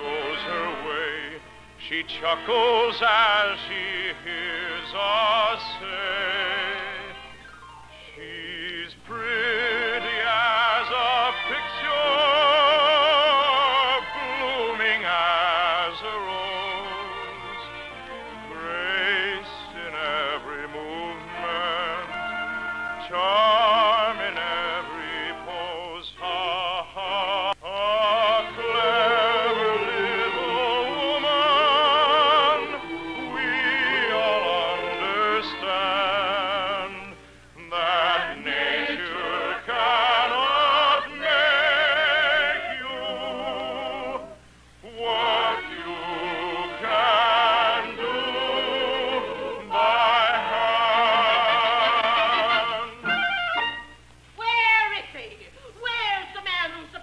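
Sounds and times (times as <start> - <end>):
operetta singing with vibrato: 0.0 - 57.0
orchestra playing: 16.2 - 25.6, 28.4 - 36.1, 45.3 - 54.1.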